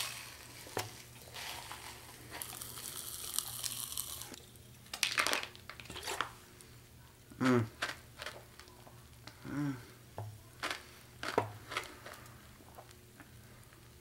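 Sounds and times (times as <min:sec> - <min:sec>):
popping candy crackling: 0:00.0 - 0:09.7, 0:10.3 - 0:14.0.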